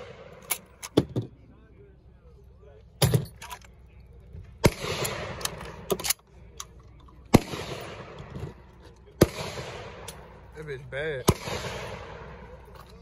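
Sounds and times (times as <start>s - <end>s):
shotgun shots with echo: 4.6s - 5.8s, 7.3s - 8.2s, 9.2s - 10.2s, 11.2s - 12.6s.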